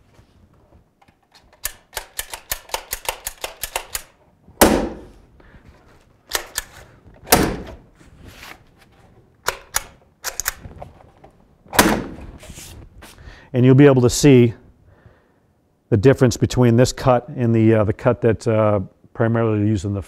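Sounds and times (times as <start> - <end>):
hammer tacker stapling into wood: 1.6 - 5.1.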